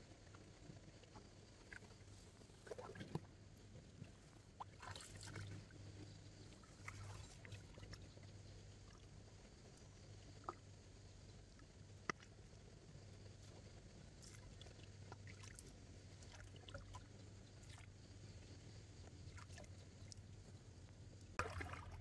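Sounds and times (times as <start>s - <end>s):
low steady hum: 0.0s - 22.0s
water splashing and dripping: 21.4s - 22.0s.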